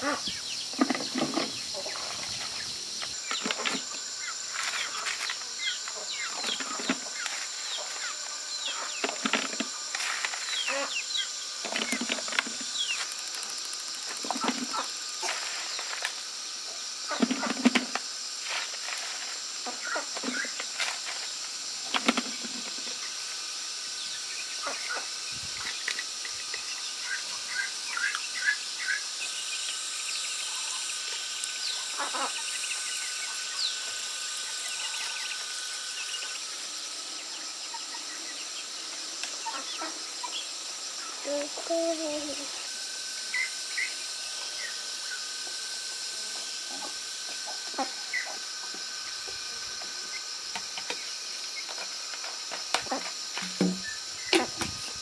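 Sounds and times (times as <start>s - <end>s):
small birds chirping: 0.0s - 16.0s, 22.4s - 45.4s
high insect drone: 0.0s - 55.0s.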